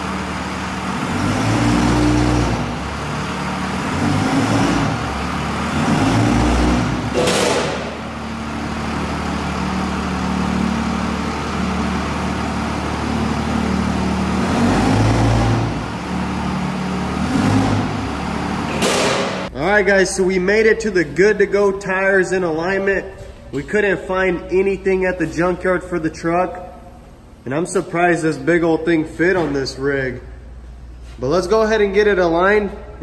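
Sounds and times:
diesel engine at low revs: 0.0s - 21.2s.

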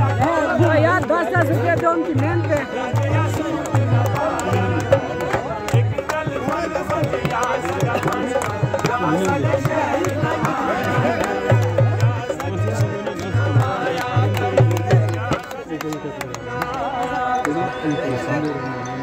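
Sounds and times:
harmonium melody: 0.0s - 19.0s.

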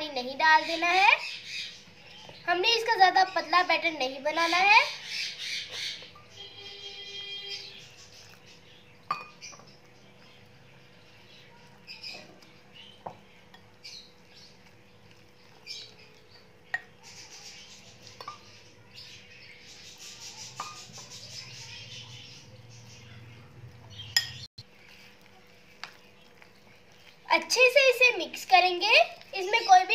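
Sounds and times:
wet batter mixing: 0.0s - 29.9s
spoon clinking against glass bowl: 9.0s - 9.6s, 16.7s - 17.0s, 18.1s - 18.6s, 20.5s - 21.1s, 24.1s - 24.4s.

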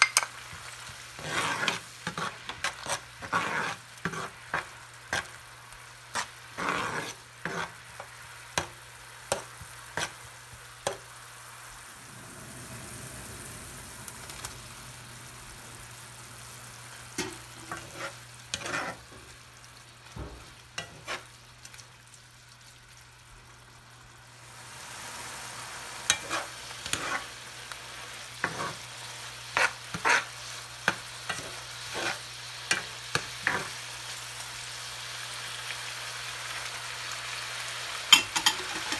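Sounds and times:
spoon scraping frying pan: 0.0s - 5.4s, 6.1s - 11.1s, 17.1s - 19.4s, 20.4s - 21.4s, 26.1s - 27.4s, 28.1s - 33.8s, 38.1s - 38.9s
food sizzling: 0.0s - 38.9s.

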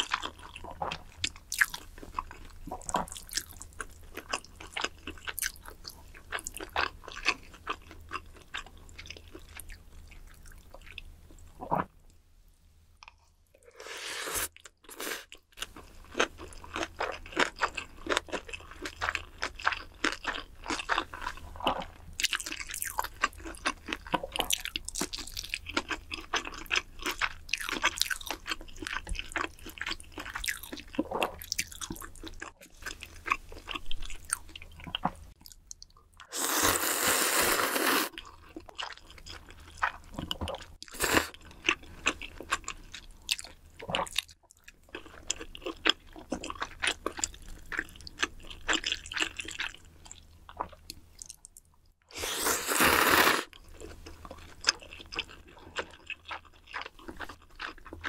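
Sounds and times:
chewing and crunching food: 0.0s - 12.2s, 14.4s - 58.0s.

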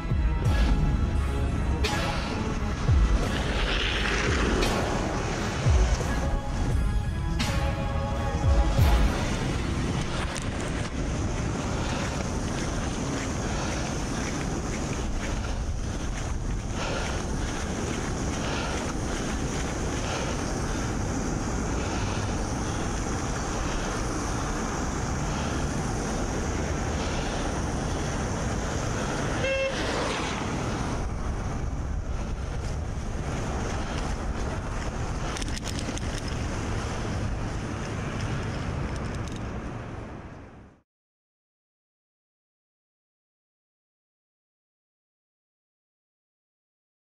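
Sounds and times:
bicycle riding over snow: 2.1s - 6.7s, 8.8s - 40.6s
wind buffeting microphone: 8.5s - 40.6s
car horn toot: 29.4s - 29.9s.

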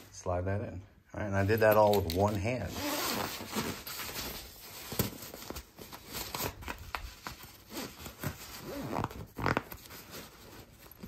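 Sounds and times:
nylon bag rustling and scraping: 2.2s - 11.0s.

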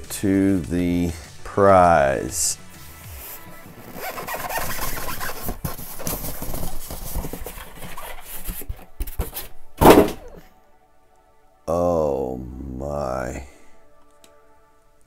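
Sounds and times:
foam scraping against cardboard: 2.8s - 9.5s
loud scrape or thump: 4.5s - 10.3s.

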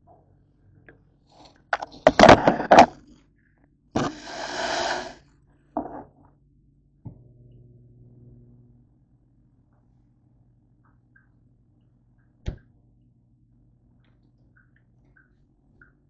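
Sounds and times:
camera handling knocks and bumps: 1.8s - 2.9s
rustling hiss: 4.0s - 5.2s
faint low hum: 5.3s - 16.0s.

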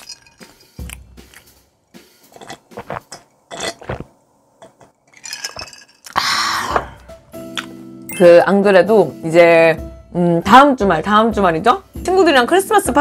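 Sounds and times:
chewing: 0.0s - 1.6s
sipping and swallowing: 2.3s - 4.2s.

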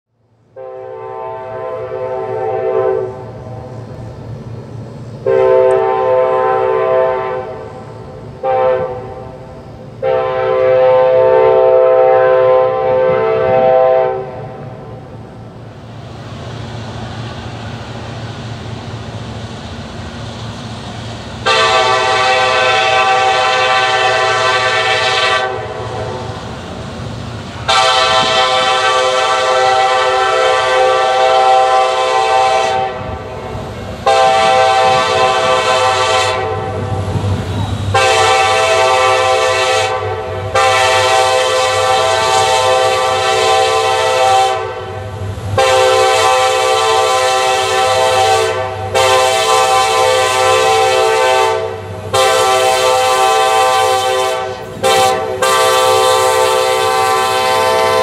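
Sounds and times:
train rumble: 0.2s - 58.0s
locomotive air horn blasts: 0.5s - 3.7s, 5.2s - 15.0s, 21.4s - 26.5s, 27.6s - 33.4s, 34.0s - 37.2s, 37.8s - 58.0s.

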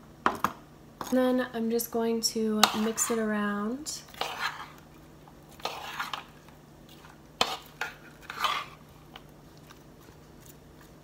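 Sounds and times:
metal spoon stirring in ceramic bowl: 2.6s - 3.3s, 4.0s - 11.0s.

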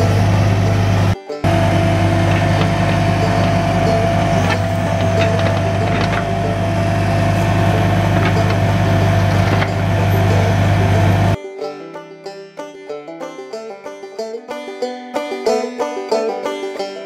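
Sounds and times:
diesel engine running under load: 0.0s - 11.4s.

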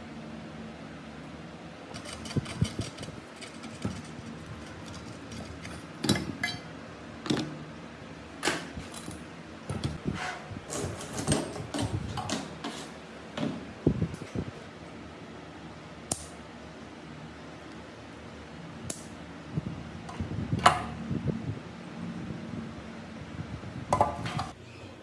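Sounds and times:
metal parts clinking on workbench: 5.6s - 6.7s.

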